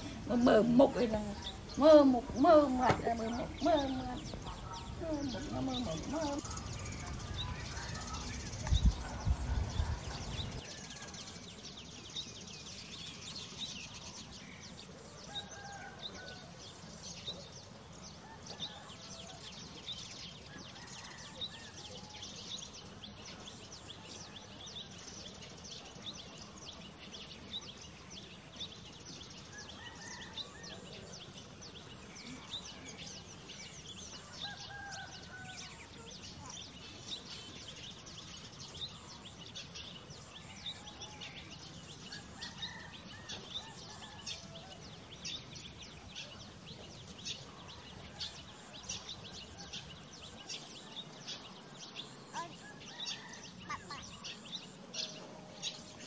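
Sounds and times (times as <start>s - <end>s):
bird chirps: 0.6s - 17.8s.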